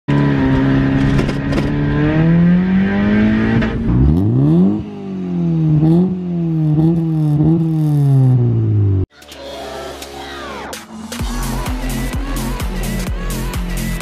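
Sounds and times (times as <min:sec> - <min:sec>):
car engine revving: 0:00.1 - 0:09.1.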